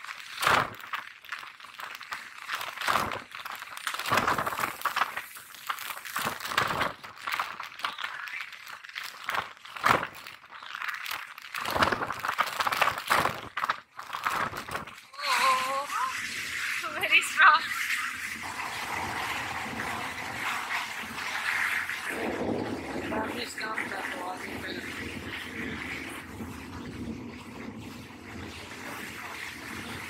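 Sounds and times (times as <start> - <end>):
wind buffeting microphone: 22.1 - 30.0.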